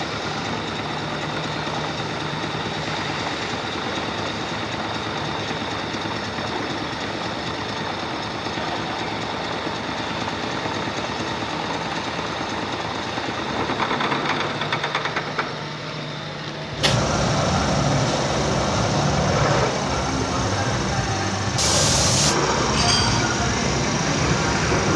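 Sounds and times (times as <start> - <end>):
milling machine whirring: 16.7 - 24.9.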